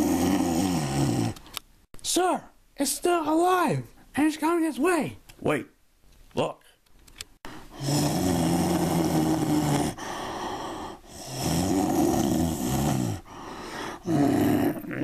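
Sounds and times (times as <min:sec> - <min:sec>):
monster growling: 0:00.0 - 0:01.4, 0:07.8 - 0:10.0, 0:10.8 - 0:13.3, 0:13.9 - 0:15.0.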